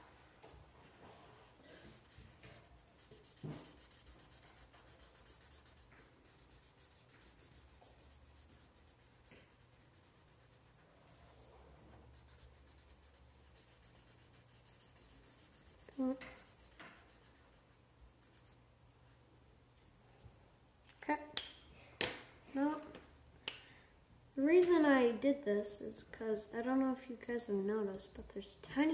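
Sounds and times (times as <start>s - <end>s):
marker scratching on paper: 1.4s - 10.8s, 12.1s - 18.6s.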